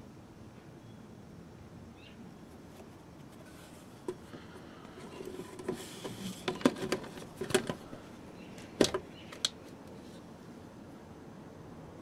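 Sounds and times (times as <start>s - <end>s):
plastic funnel knocking and scraping: 3.4s - 4.3s, 5.0s - 8.0s, 8.6s - 9.5s.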